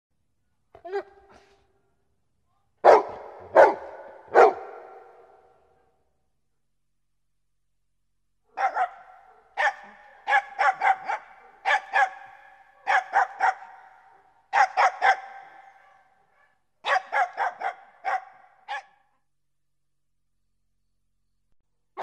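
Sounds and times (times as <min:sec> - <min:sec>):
dog barking: 0:02.8 - 0:05.8, 0:08.5 - 0:19.2.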